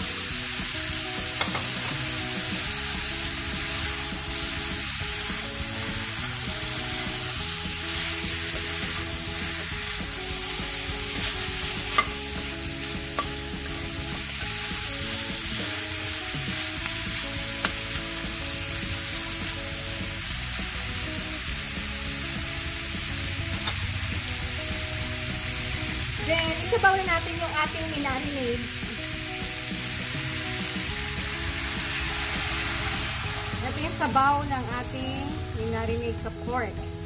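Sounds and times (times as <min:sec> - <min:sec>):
meat sizzling in hot oil: 0:00.0 - 0:37.0
metal spatula stirring: 0:10.8 - 0:13.5.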